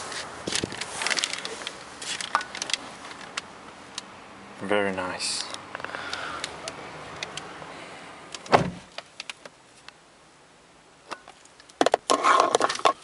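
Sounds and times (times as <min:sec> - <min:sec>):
clicking and rustling handling noise: 0:00.1 - 0:04.1, 0:05.4 - 0:07.5
car door thud: 0:08.5 - 0:08.9.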